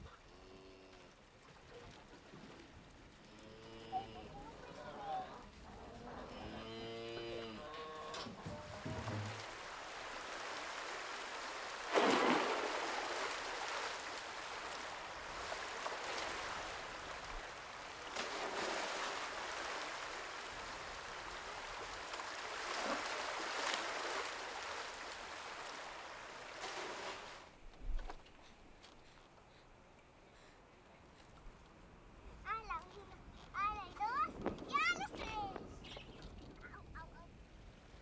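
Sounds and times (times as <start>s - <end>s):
shallow stream running: 0.0s - 38.0s
water pouring into plastic drums: 8.8s - 13.7s.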